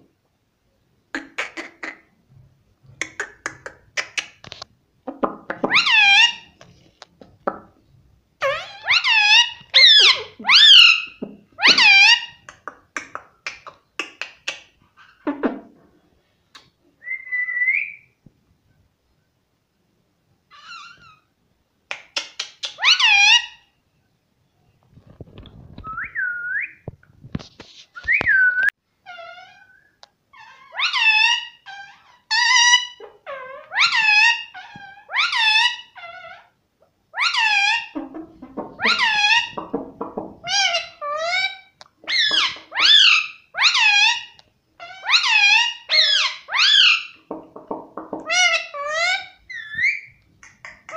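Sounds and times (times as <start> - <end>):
parakeet squawking and whistling: 5.6 - 6.5, 8.4 - 12.4, 28.2 - 36.4, 37.2 - 39.7, 40.4 - 47.2, 48.3 - 50.9.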